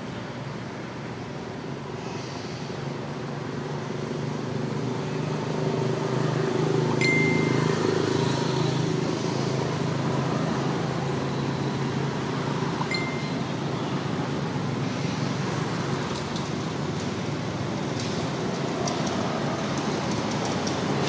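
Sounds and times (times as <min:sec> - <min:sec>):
thin steady high tone: 0:07.0 - 0:08.2, 0:12.8 - 0:13.8.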